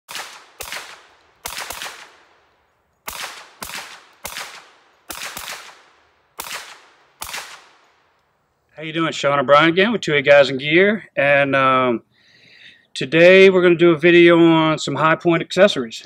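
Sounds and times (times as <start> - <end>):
rifle gunshots with echo: 0.1 - 8.2.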